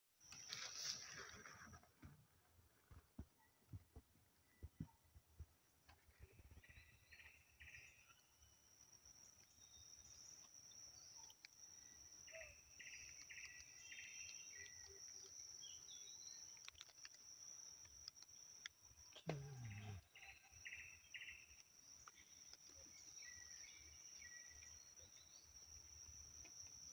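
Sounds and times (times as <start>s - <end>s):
insect chirping trills: 4.5s - 26.9s
high-pitched insect drone: 19.1s - 21.4s.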